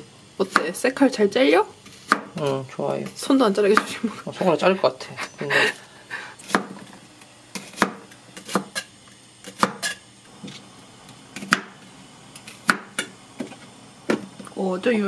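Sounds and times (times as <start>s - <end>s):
knife chopping on cutting board: 1.9s - 2.4s, 3.7s - 4.0s, 6.4s - 6.9s, 7.5s - 10.6s, 11.4s - 11.8s, 12.4s - 13.5s.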